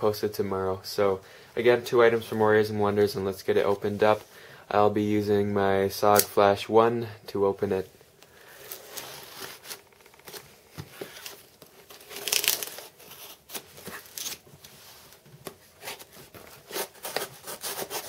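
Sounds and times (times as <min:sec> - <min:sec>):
tape tearing and crinkling: 0:08.6 - 0:14.7, 0:15.4 - 0:18.0
rustling cardboard: 0:08.7 - 0:18.0
knife slitting packing tape: 0:12.0 - 0:14.4, 0:16.6 - 0:18.0.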